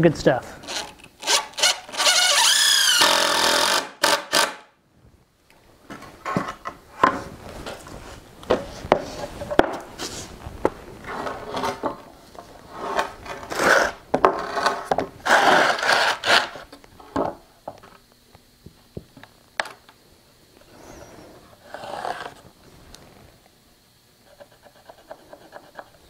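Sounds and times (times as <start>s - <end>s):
wooden boards scraping: 12.7s - 16.6s, 20.8s - 22.4s.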